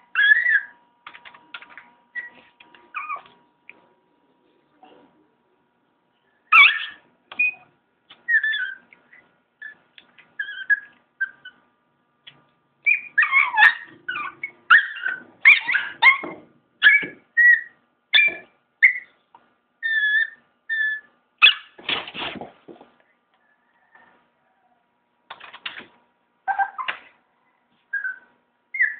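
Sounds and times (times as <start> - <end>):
small dog whining and yelping: 0.1 - 0.8, 2.1 - 3.4, 6.5 - 11.6, 12.8 - 19.2, 19.8 - 21.8, 26.4 - 27.2, 27.8 - 28.9.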